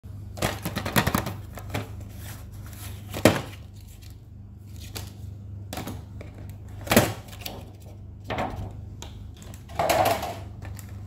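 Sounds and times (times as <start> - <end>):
steady low hum: 0.1 - 11.0
cardboard rustling and scraping: 0.9 - 5.1.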